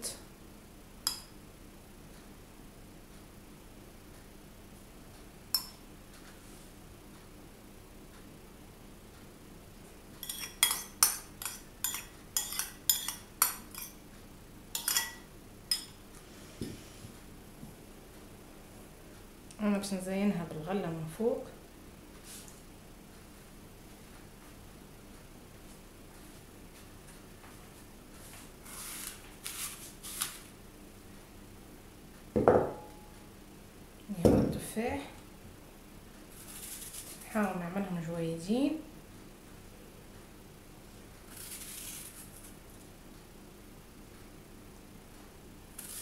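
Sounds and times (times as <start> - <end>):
metal spoon clinking on ceramic bowl: 5.5 - 5.8, 10.2 - 14.0, 14.7 - 16.0.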